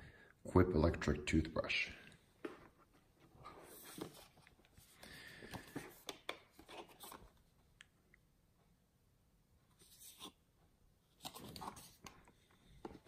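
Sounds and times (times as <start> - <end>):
paper and cardboard rustling: 2.5 - 7.4, 11.2 - 13.0.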